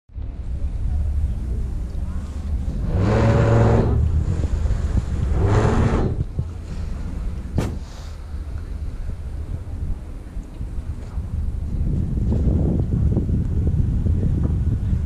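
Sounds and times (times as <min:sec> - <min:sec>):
wind rumble on microphone: 0:00.1 - 0:15.0
boat motor humming: 0:00.4 - 0:11.7.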